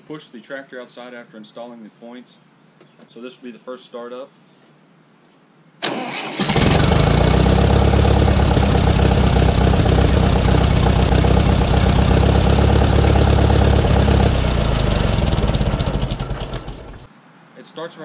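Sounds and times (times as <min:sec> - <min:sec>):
tractor engine running: 0:05.9 - 0:17.1.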